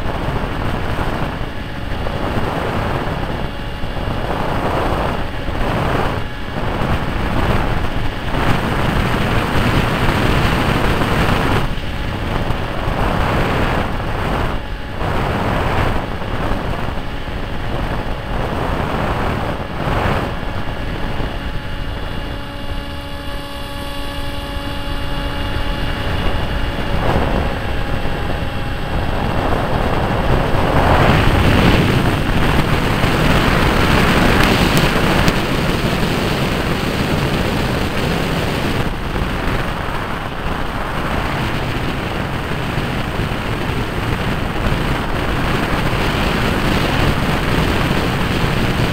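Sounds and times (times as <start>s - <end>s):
motor whine: 0.0s - 48.9s
rushing wind and propeller noise: 0.0s - 48.9s.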